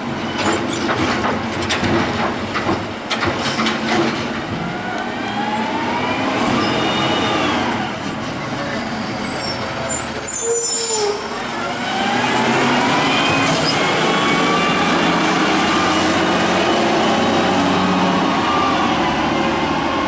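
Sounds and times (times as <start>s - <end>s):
garbage truck diesel engine: 0.0s - 10.4s, 11.0s - 20.0s
high brake squeal and hiss: 6.4s - 11.4s, 13.1s - 13.9s.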